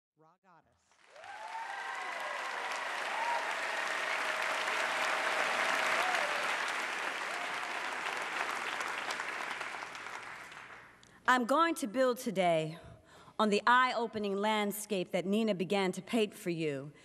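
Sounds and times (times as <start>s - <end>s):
audience applauding: 0.9s - 11.0s.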